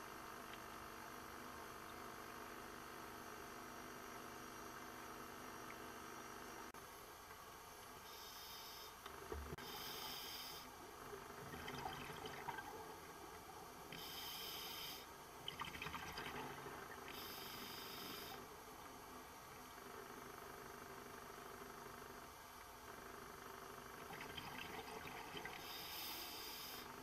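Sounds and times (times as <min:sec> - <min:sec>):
regulator inhalation hiss: 0:08.0 - 0:09.0, 0:09.6 - 0:10.7, 0:14.0 - 0:15.1, 0:17.1 - 0:18.4, 0:25.6 - 0:27.0
exhaled air bubbling: 0:11.0 - 0:14.5, 0:15.3 - 0:18.4, 0:23.9 - 0:26.2.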